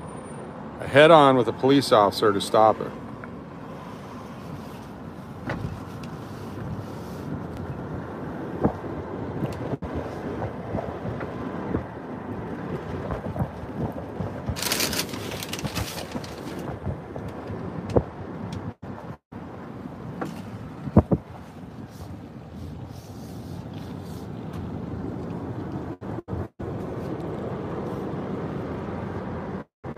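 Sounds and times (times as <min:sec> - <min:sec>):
car road and engine rumble: 0:00.0 - 0:29.9
wind buffeting microphone: 0:03.7 - 0:19.2, 0:20.4 - 0:23.0.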